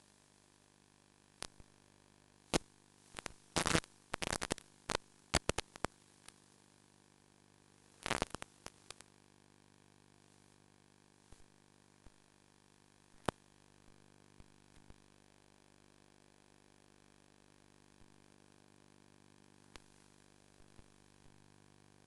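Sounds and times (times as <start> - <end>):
faint static hiss and hum: 0.0 - 22.0
sharp crackling pops: 2.5 - 6.5, 8.0 - 9.2, 13.2 - 13.5.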